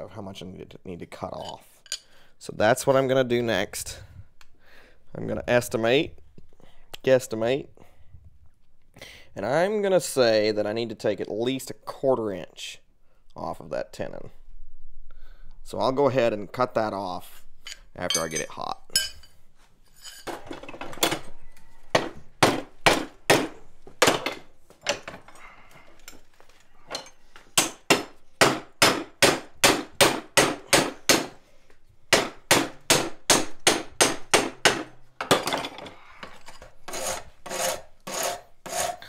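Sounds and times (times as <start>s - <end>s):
hammer striking hot iron: 27.6s - 31.3s.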